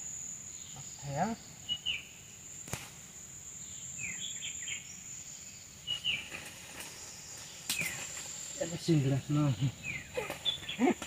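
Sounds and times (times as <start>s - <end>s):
high-pitched insect drone: 0.0s - 11.0s
bird falling chirps: 7.6s - 8.3s, 9.8s - 11.0s.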